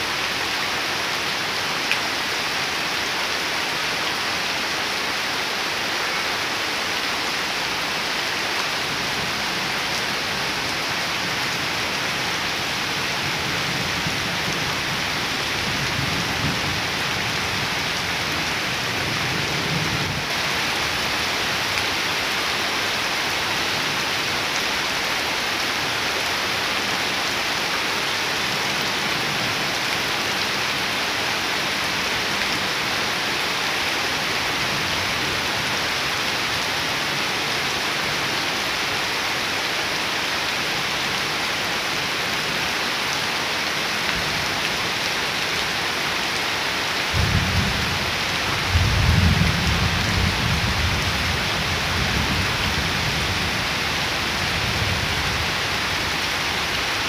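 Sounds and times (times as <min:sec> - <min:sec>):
heavy rain on wet ground: 0:00.0 - 0:57.0
low rumble of thunder: 0:48.6 - 0:51.2.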